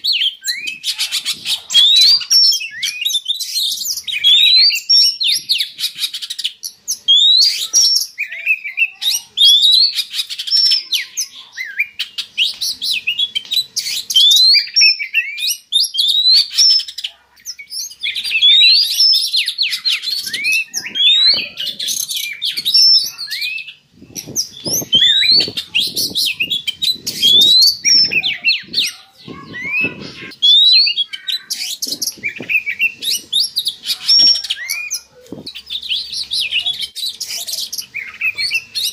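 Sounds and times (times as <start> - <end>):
bird singing whistles: 0.0 - 38.9.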